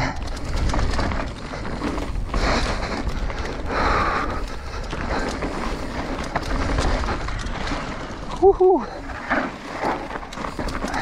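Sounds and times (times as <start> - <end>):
wind buffeting microphone: 0.0 - 7.8
bike rattling over bumps: 0.0 - 11.0.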